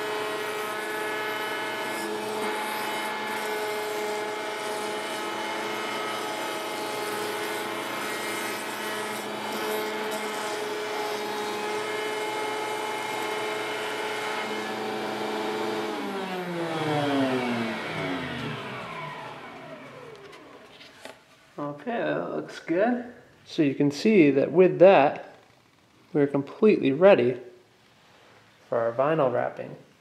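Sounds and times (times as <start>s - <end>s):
router motor running: 0.0s - 20.8s.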